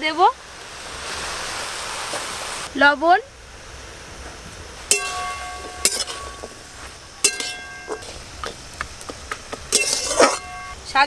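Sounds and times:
metal spatula clinking on pan: 4.9 - 6.6, 7.2 - 8.2, 9.7 - 10.7
pan ringing: 4.9 - 8.4, 9.7 - 10.8
spatula scraping pan: 4.9 - 8.6, 9.7 - 10.8.

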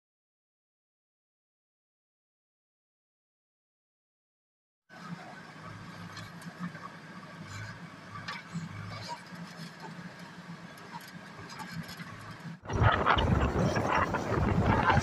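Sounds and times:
diesel engine running: 12.1 - 15.0.

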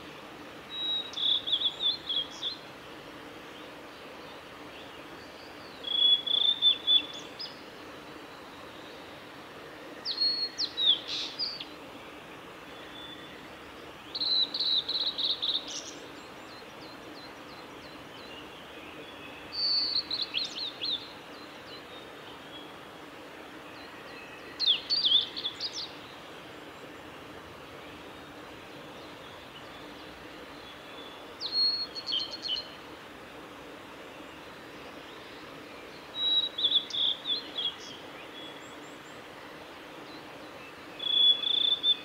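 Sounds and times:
steady background hiss: 0.0 - 42.0
flycatcher singing: 0.7 - 2.6, 4.8 - 7.6, 12.8 - 22.7, 23.7 - 26.2, 29.0 - 32.8, 35.9 - 39.1, 40.1 - 42.0.

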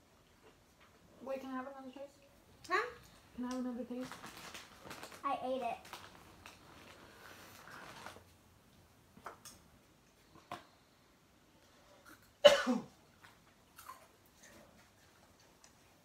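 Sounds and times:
person coughing: 12.4 - 12.9.

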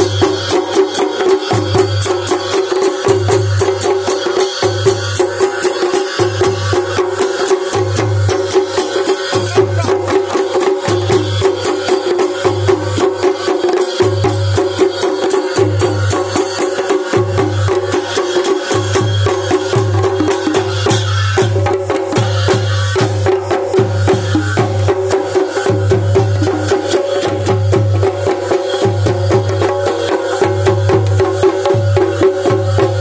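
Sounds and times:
drum beaten with a stick: 0.0 - 33.0
hand cymbals clashing: 0.0 - 33.0.

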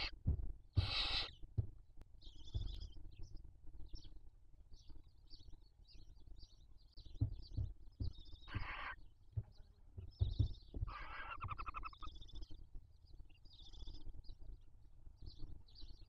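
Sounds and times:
owl chicks rasping hisses: 0.8 - 1.4
faint high twittering calls: 0.8 - 16.0
soft low knocks in nest: 1.6 - 3.2, 7.0 - 11.8.

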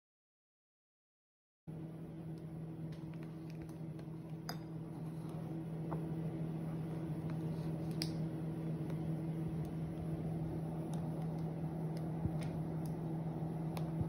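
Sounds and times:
low electrical hum: 1.7 - 14.0.

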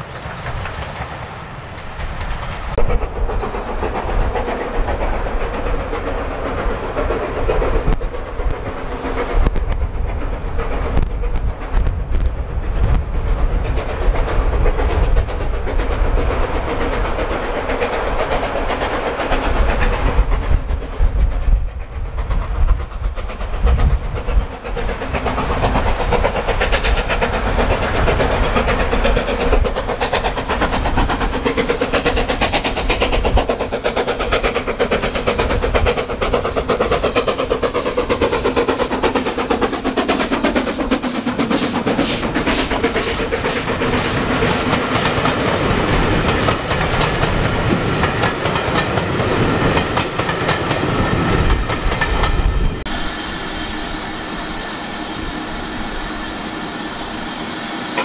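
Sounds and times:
steam locomotive exhaust beats: 0.0 - 58.0.

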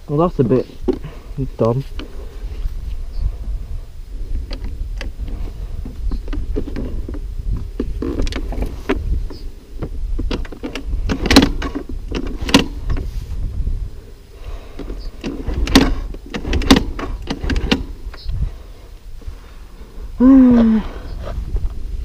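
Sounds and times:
grass and weeds rustling: 0.0 - 22.0
steady low rumble: 0.0 - 22.0
plastic bodywork knocking and scraping: 4.5 - 13.2.

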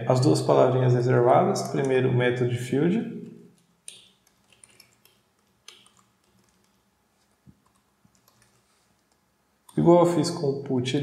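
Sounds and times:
computer keyboard keystrokes: 3.6 - 6.8, 7.5 - 9.8.

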